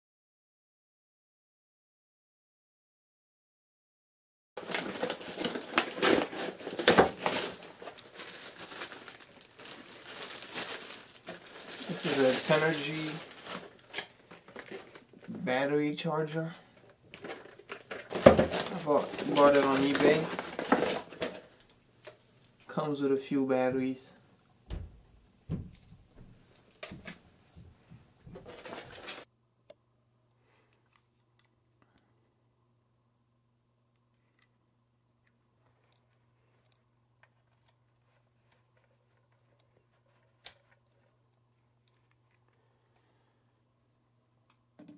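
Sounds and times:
paper envelope tearing: 0:04.6 - 0:13.9
plastic packaging crinkling: 0:04.6 - 0:15.3, 0:16.8 - 0:22.3, 0:28.4 - 0:29.3.

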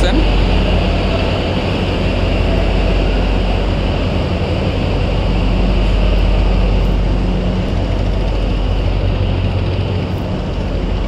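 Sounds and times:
diesel boat engine droning: 0:00.0 - 0:11.0.

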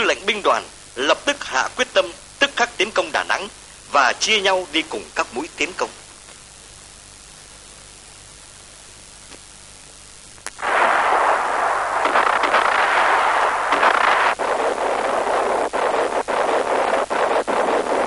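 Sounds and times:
faint hiss: 0:00.0 - 0:18.0
artillery fire: 0:10.6 - 0:18.0.

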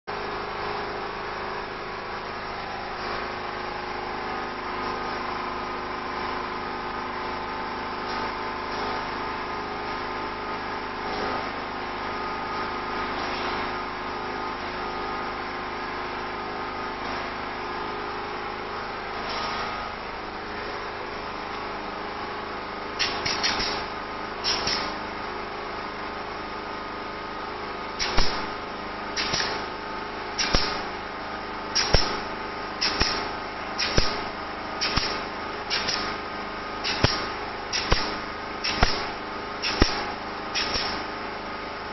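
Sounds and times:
machine hum: 0:00.1 - 0:41.9
pneumatic clip gun air bursts: 0:13.1 - 0:13.8, 0:19.2 - 0:20.0, 0:23.0 - 0:25.2, 0:28.0 - 0:31.0, 0:31.7 - 0:41.3.

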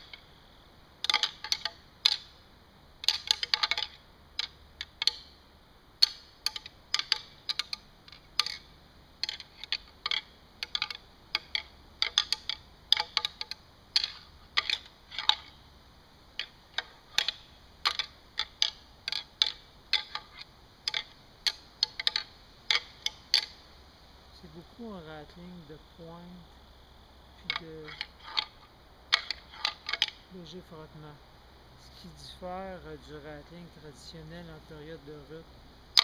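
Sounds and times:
antlers clicking together: 0:01.0 - 0:02.4, 0:03.0 - 0:05.4, 0:06.0 - 0:15.6, 0:16.4 - 0:23.6, 0:27.4 - 0:31.0.

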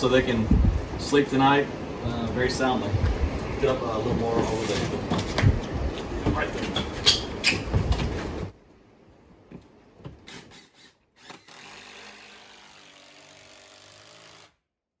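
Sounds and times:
cordless drill driving screw: 0:10.2 - 0:14.6.

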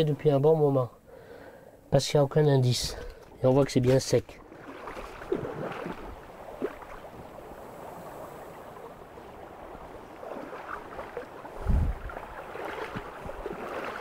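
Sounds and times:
boots wading through water: 0:03.0 - 0:14.0.

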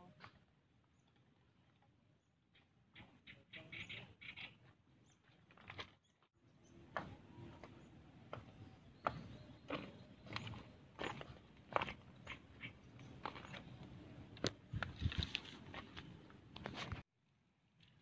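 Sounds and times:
sandal footsteps on loose rocks: 0:06.9 - 0:17.0.

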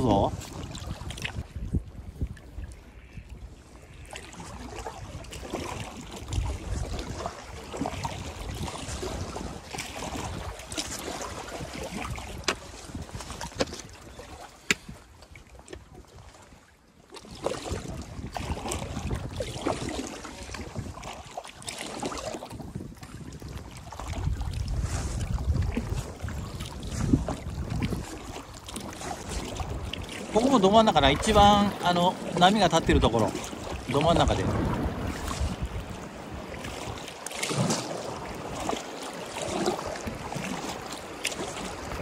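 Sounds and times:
wind buffeting microphone: 0:00.0 - 0:16.3, 0:17.3 - 0:21.4, 0:22.0 - 0:42.0
flowing river: 0:00.0 - 0:42.0
paddle strokes splashing: 0:00.0 - 0:42.0.

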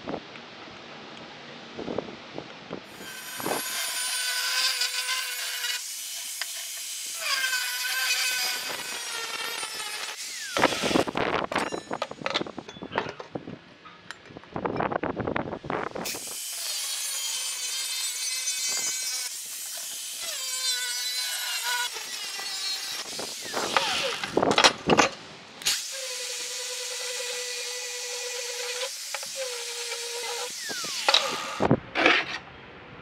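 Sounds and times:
angle grinder grinding steel: 0:02.9 - 0:12.2, 0:16.0 - 0:24.9, 0:25.6 - 0:32.4.

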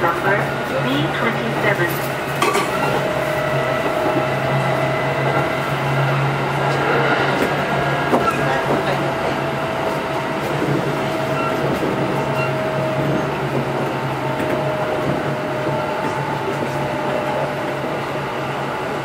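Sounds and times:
train wheels rumbling on rail: 0:00.0 - 0:19.0.

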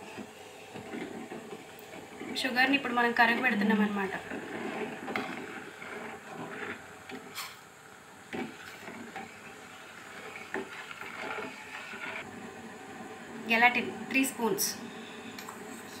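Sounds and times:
ladle scraping metal pot: 0:00.8 - 0:07.6, 0:08.3 - 0:12.2.

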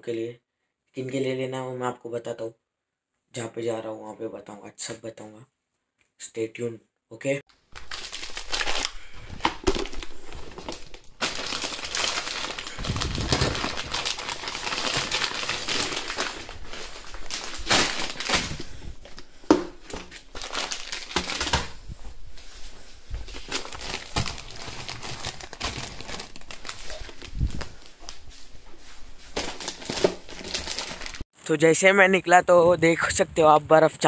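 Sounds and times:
plastic packets crinkling: 0:07.6 - 0:21.9, 0:23.1 - 0:28.3, 0:29.3 - 0:31.2.

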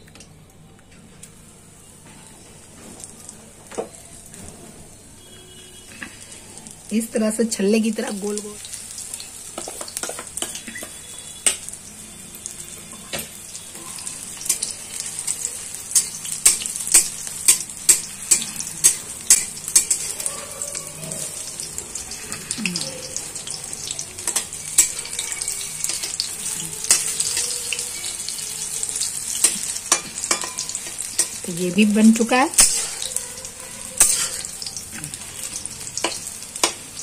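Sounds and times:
onion rings deep-frying in oil: 0:01.0 - 0:37.0
metal spatula stirring in a pan: 0:13.0 - 0:20.3, 0:23.4 - 0:31.5, 0:32.2 - 0:36.9.

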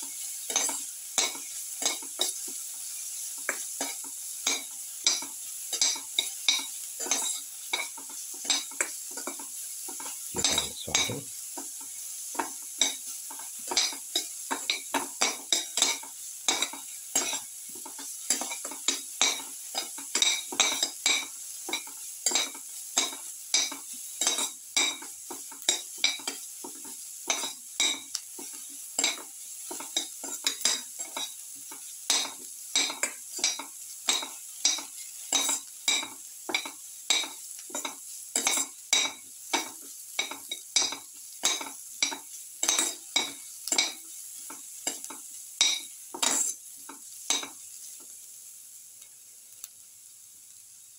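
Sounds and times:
onions sizzling in pan: 0:00.0 - 0:50.9
spoon scraping pan bottom: 0:45.7 - 0:46.6.

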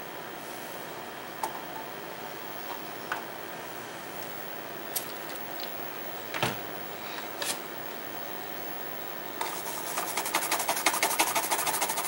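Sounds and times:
toothbrush scrubbing circuit board: 0:09.4 - 0:12.0.

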